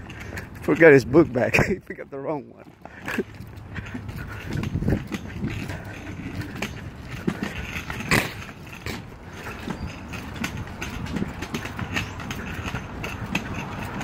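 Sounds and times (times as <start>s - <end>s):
footsteps on concrete: 0.0s - 14.0s.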